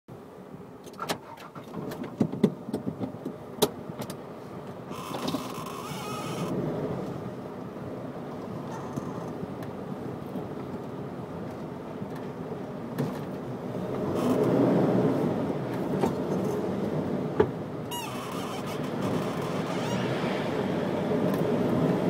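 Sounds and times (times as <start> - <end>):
city street traffic: 0.1 - 22.0
brief high squeal: 17.9 - 18.6, 19.3 - 20.5
vehicle passing close: 18.8 - 22.0.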